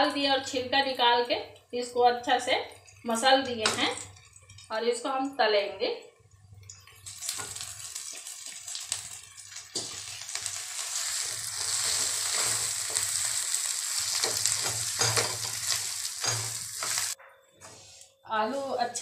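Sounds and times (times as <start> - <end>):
potato sizzling in oil: 6.6 - 17.2
spatula scraping and tapping pan: 14.1 - 17.9.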